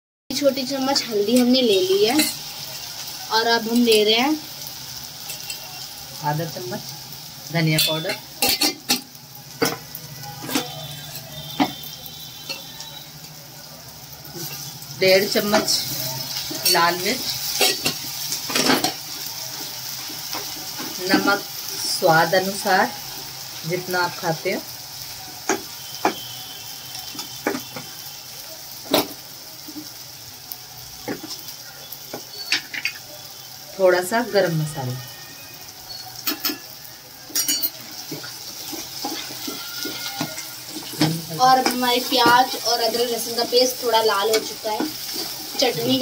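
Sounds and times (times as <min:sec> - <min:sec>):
faint sizzle of frying: 0:00.3 - 0:46.0
steel spoon clinking on bowls: 0:36.2 - 0:41.8.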